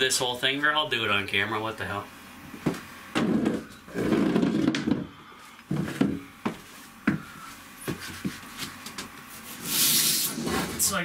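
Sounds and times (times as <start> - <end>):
wall panel scraping and rubbing: 3.2 - 6.8, 7.9 - 11.0.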